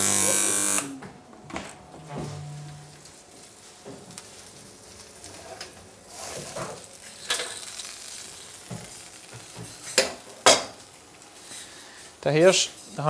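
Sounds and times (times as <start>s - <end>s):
meat sizzling in a hot pan: 3.4s - 13.0s.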